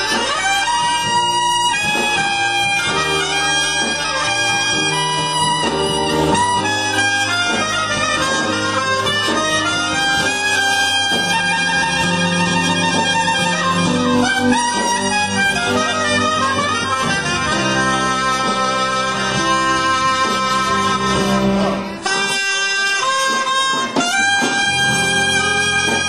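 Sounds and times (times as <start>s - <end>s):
backing music with bass line: 0.0s - 26.0s
saxophone playing blues melody: 0.0s - 26.0s.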